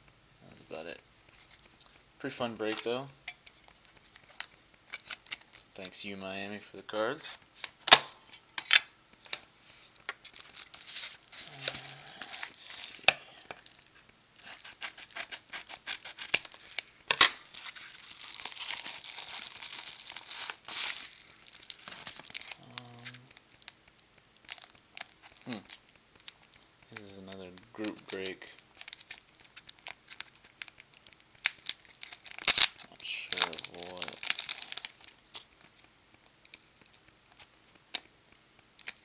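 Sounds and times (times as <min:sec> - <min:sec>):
plastic wrapping crinkling: 0:00.5 - 0:39.0
paper mailer tearing: 0:32.1 - 0:34.8.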